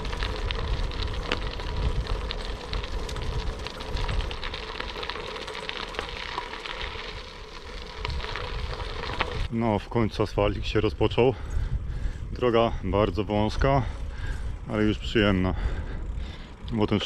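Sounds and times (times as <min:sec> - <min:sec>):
wind buffeting microphone: 0:00.0 - 0:05.1, 0:06.1 - 0:17.0
bicycle tyres on gravel: 0:00.0 - 0:17.0.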